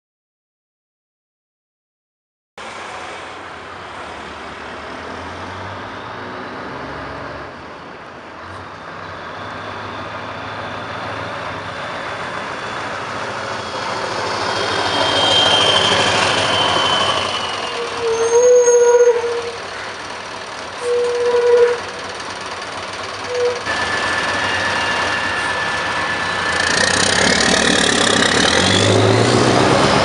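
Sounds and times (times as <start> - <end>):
diesel truck engine passing: 2.6 - 18.1, 21.8 - 30.0.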